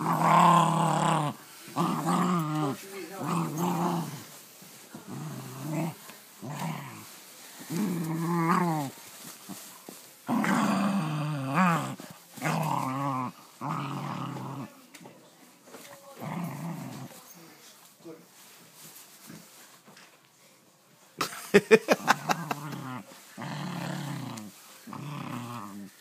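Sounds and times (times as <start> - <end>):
dog growling and grumbling: 0.0 - 9.0, 10.2 - 14.8, 16.1 - 17.2, 21.9 - 26.0.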